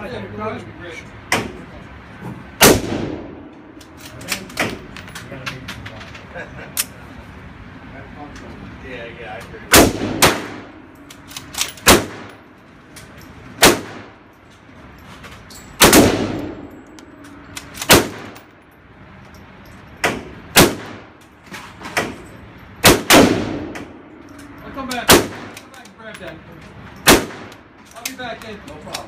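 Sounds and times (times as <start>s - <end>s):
pistol shots echoing indoors: 15.8s - 16.6s.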